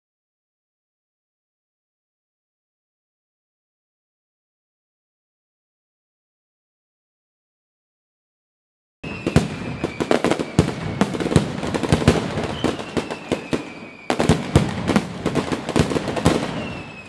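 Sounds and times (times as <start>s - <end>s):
descending firework whistle: 9.0s - 17.0s
firework bangs and crackles: 9.0s - 17.0s.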